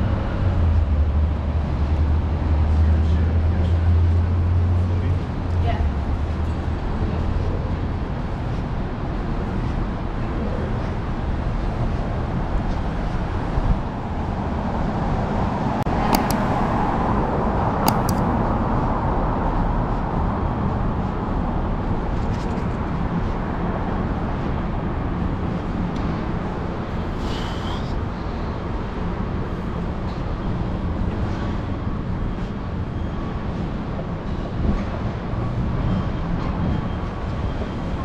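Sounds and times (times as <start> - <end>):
road noise: 0.0 - 38.0
sharp clicks: 16.1 - 16.5, 17.8 - 18.3.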